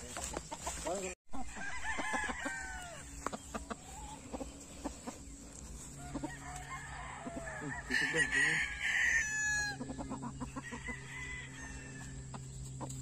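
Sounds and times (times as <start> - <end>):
rooster crowing: 1.4 - 3.2, 5.9 - 9.9, 10.5 - 12.3.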